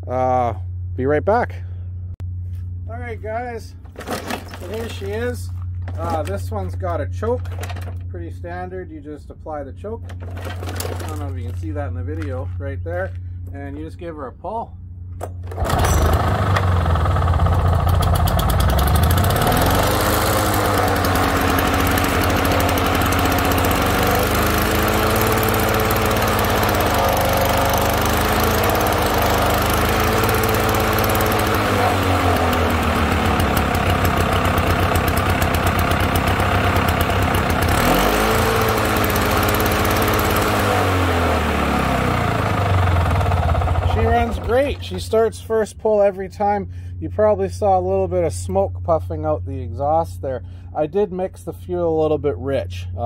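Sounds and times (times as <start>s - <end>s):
lawnmower engine starting and running: 3.8s - 6.6s, 10.0s - 11.7s, 15.2s - 45.2s.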